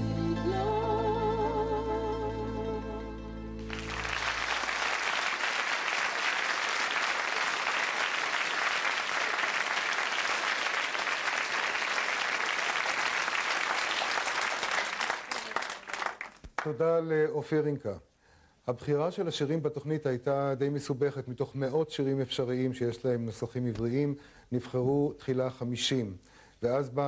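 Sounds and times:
music: 0.0 - 4.3
audience applauding: 3.6 - 16.8.

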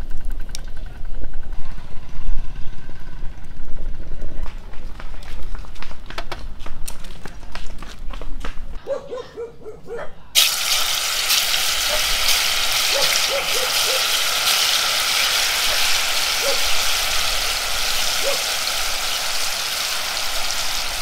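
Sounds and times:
hot oil sizzling in a wok: 10.4 - 21.0.

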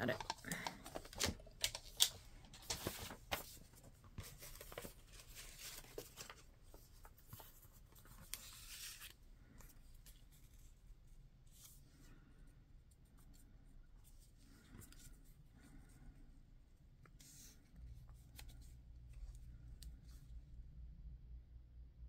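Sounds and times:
paper rustling: 0.0 - 10.8.

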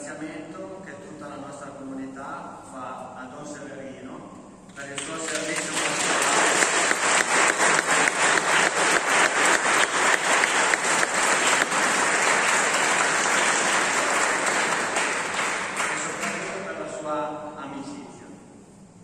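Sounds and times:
congregation applauding: 4.8 - 16.9
sharp near hand claps: 4.9 - 16.7.

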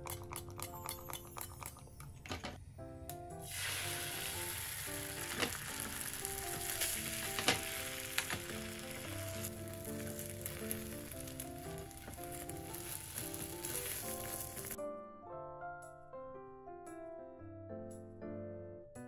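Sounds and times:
utensil tapping: 0.0 - 2.6
food sizzling in hot oil: 3.4 - 14.8.

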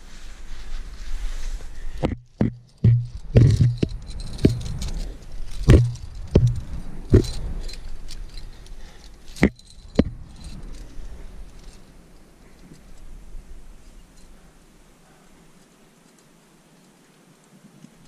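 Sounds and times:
scuffs against rock: 0.0 - 12.0
climbing hardware jangling: 2.5 - 13.2.

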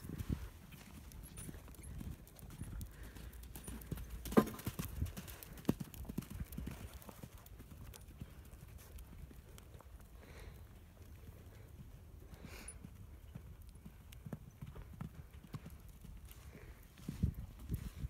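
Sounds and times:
horse hooves thudding on sand: 0.0 - 10.0.

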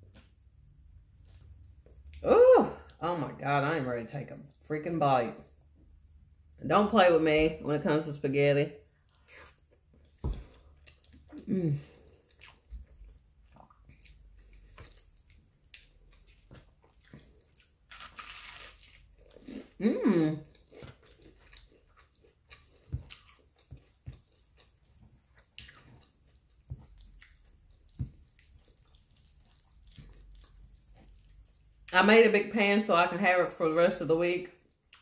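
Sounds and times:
person chewing and slurping: 9.1 - 19.8, 20.4 - 31.9
person humming: 19.8 - 20.4.

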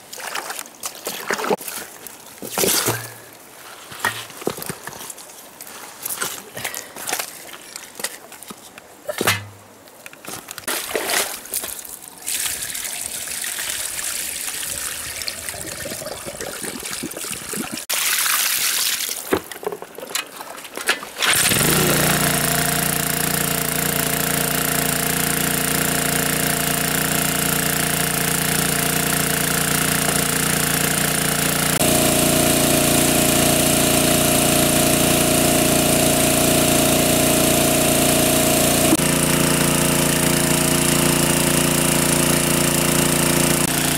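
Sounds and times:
water splashing: 0.0 - 3.3, 10.6 - 22.1
water pump engine running: 21.3 - 43.9.

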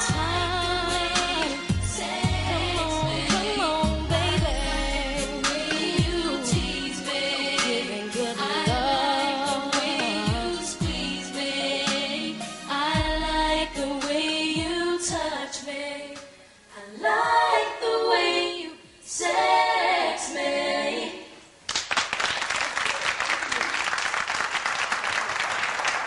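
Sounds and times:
women singing in close harmony: 0.0 - 21.4
audience applause: 21.7 - 26.0.

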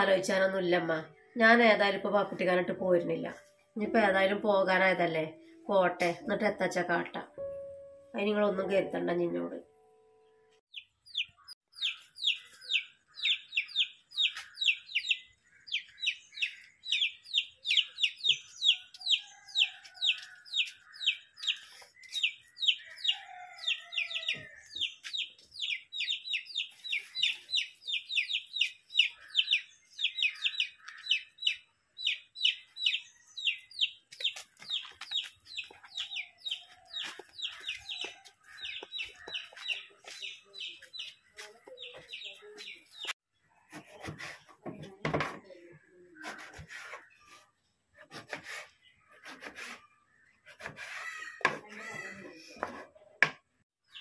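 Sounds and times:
chicks peeping: 10.7 - 43.2.

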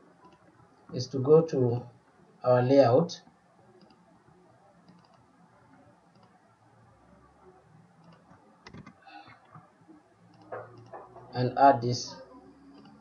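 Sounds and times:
keyboard and mouse clicks: 0.2 - 0.5, 3.8 - 4.0, 4.8 - 5.3, 6.1 - 6.4, 8.0 - 9.6, 10.3 - 11.4, 12.5 - 13.0.

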